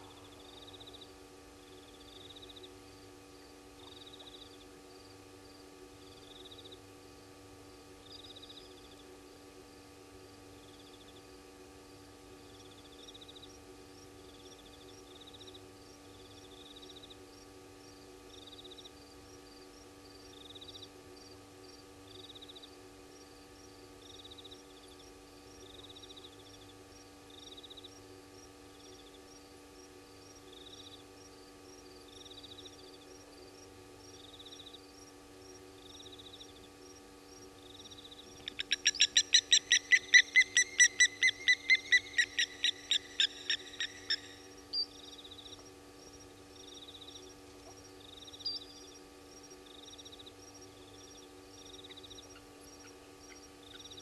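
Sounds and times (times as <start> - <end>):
faint insects chirping: 0.0 - 54.0
bird sharp high calls: 38.5 - 44.9.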